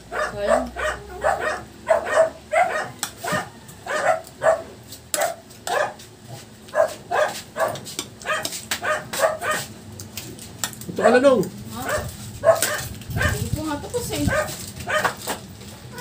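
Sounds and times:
dog barking: 0.1 - 6.0, 6.7 - 9.7, 11.0 - 13.4, 14.2 - 15.2.

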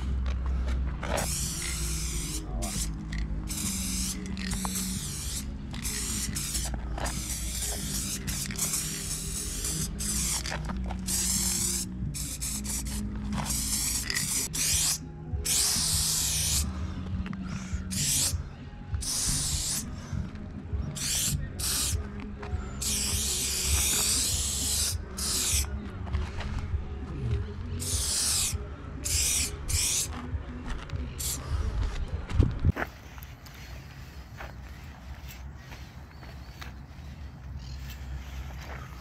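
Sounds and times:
low background music: 0.0 - 39.0
spray paint can hissing: 1.1 - 16.7, 17.6 - 18.4, 19.0 - 20.0, 20.9 - 22.1, 22.7 - 26.6, 27.8 - 30.2, 31.2 - 31.5, 33.1 - 38.4.

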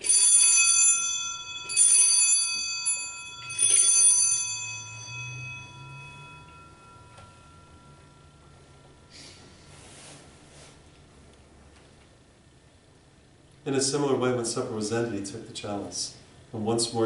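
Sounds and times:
small bells jangling: 0.0 - 9.3.

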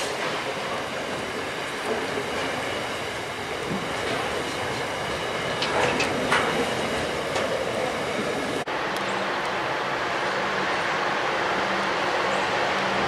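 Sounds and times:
freight train wheels rumbling: 0.0 - 13.0.

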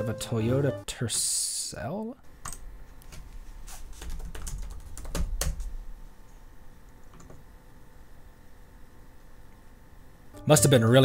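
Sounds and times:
keyboard keys clicking: 4.0 - 5.8.

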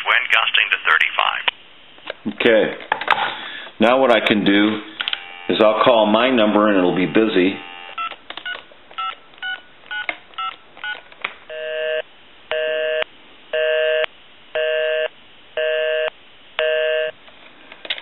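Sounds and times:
telephone dialing beeps: 7.6 - 11.0.

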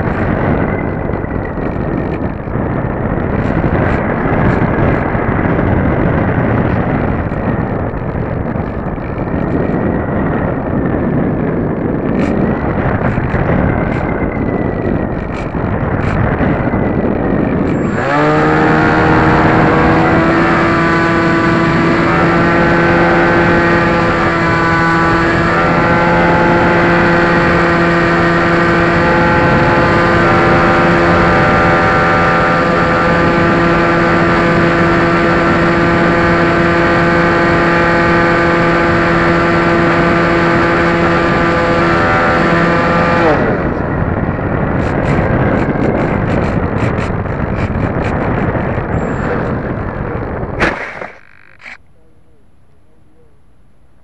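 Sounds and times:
electric motor and propeller whine: 0.0 - 52.9
air rushing past camera: 43.2 - 52.0.

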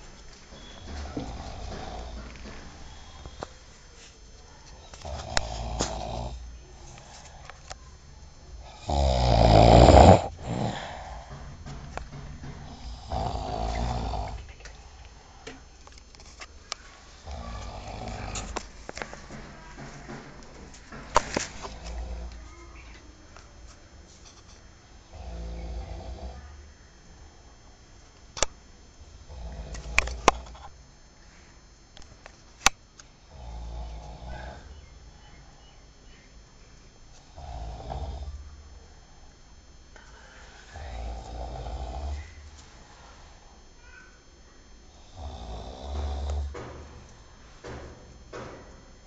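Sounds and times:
man snoring: 0.6 - 3.5, 5.0 - 7.4, 8.6 - 11.4, 12.6 - 14.5, 17.1 - 18.7, 21.6 - 22.4, 25.0 - 26.5, 29.2 - 30.6, 33.3 - 34.8, 37.3 - 38.4, 40.6 - 42.4, 44.9 - 46.6.

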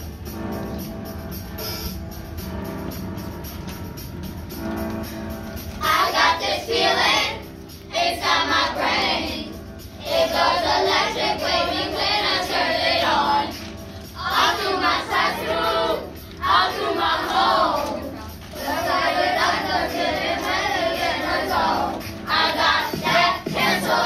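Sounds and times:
instrumental backing music: 0.0 - 24.0
children singing: 5.8 - 24.0.

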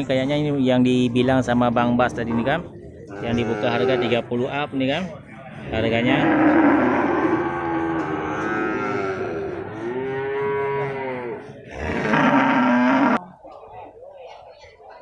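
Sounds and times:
cattle mooing: 3.1 - 4.2, 5.7 - 13.3.

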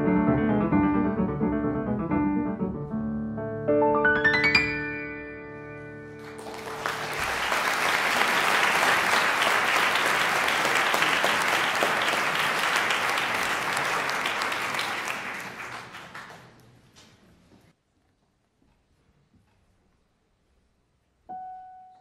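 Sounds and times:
piano chord: 0.0 - 6.4
audience applauding: 6.2 - 16.8.

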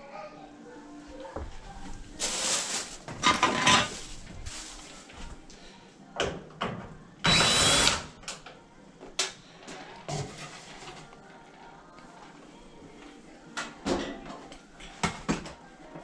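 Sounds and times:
cordless drill bursts: 7.3 - 8.1.

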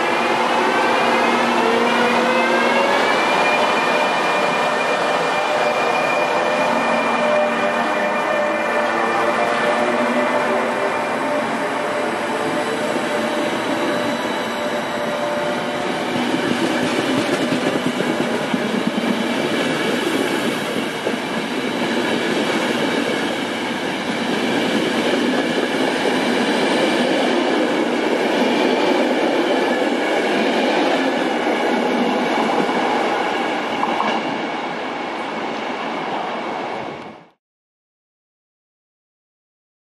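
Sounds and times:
train wheels rumbling on rail: 0.0 - 36.2.

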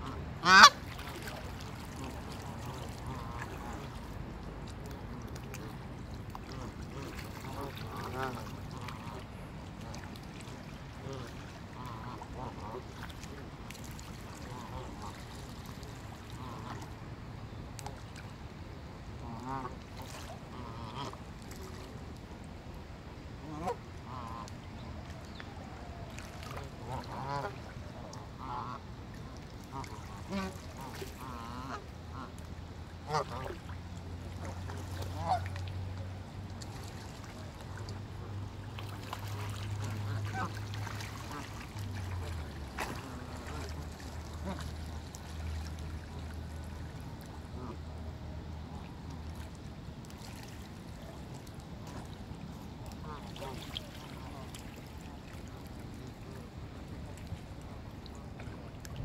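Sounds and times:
geese honking: 0.0 - 0.8
goose honking: 0.0 - 0.8, 35.2 - 35.5, 40.1 - 40.6.

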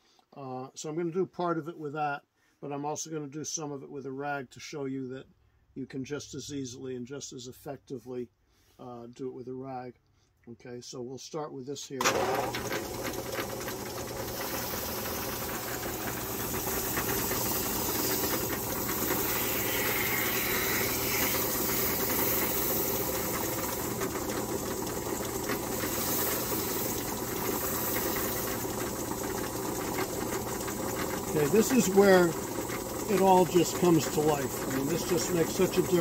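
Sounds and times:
electric buffer motor humming: 12.0 - 36.0.

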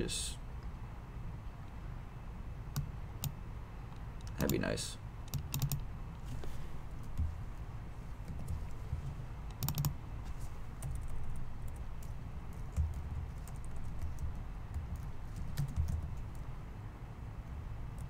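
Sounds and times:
low steady hum: 0.0 - 18.0
computer keyboard typing: 5.3 - 5.8, 6.9 - 7.4, 8.2 - 8.8, 9.5 - 10.0, 10.8 - 16.5.

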